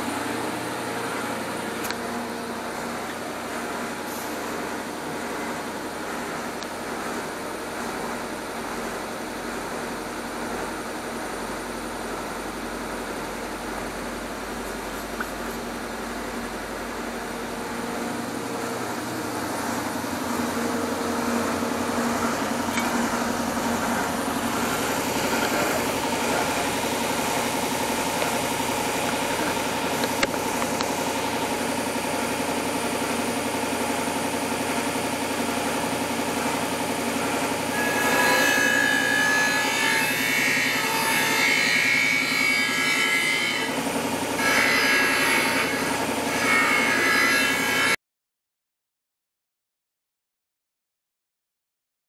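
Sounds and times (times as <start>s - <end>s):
electric sander running: 14.6s - 37.7s
knife blade grinding on disc: 22.0s - 30.4s.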